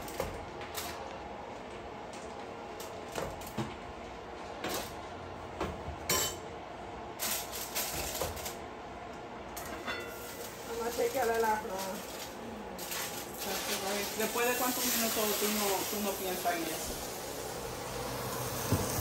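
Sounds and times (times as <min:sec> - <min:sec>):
utensils clinking against pots: 0:06.1 - 0:06.4, 0:09.6 - 0:16.2.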